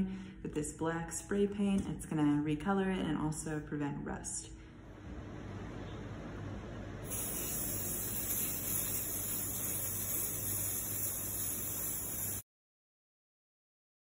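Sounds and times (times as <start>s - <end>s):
aerosol spray paint hissing: 7.0s - 12.4s.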